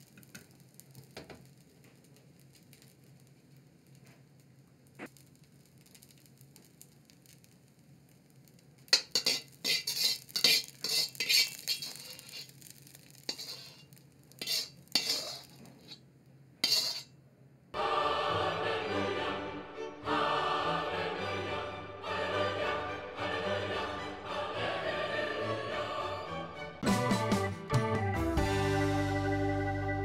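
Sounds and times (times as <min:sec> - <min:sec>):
ladle scraping a metal wok: 0:08.9 - 0:16.0, 0:16.6 - 0:17.2
music: 0:17.8 - 0:30.0.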